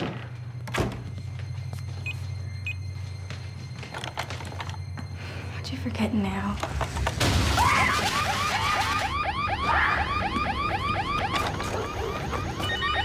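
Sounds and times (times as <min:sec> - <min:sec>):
burglar alarm chirping: 0:01.6 - 0:03.9, 0:08.3 - 0:13.0.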